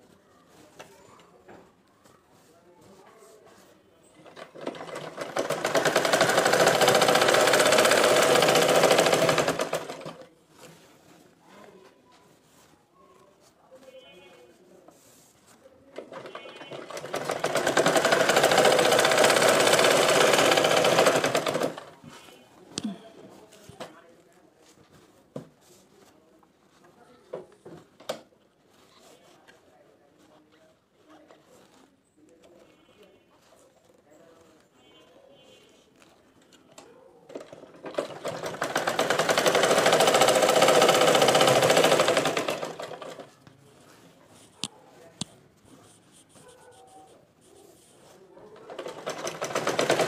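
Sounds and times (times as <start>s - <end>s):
sewing machine stitching: 4.1s - 10.3s, 16.0s - 22.1s, 37.3s - 43.4s, 48.5s - 50.0s
cloth rustling: 5.9s - 15.9s, 28.5s - 32.7s.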